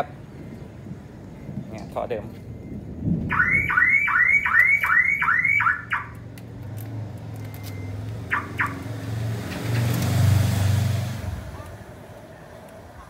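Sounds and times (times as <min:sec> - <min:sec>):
car alarm whooping: 0:03.3 - 0:06.1, 0:08.3 - 0:08.8.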